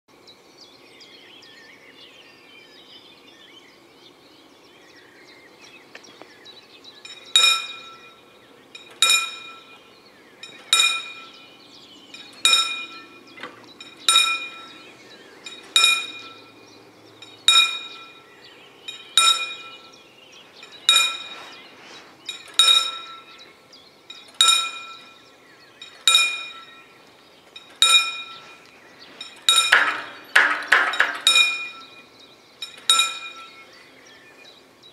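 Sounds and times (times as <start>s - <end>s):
level crossing warning bell: 7.0s - 21.6s, 22.2s - 33.8s.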